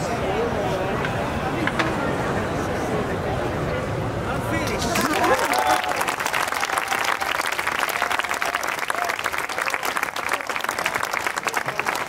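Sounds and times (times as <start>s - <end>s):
faint voices: 0.0s - 6.9s
audience applauding: 4.9s - 12.0s.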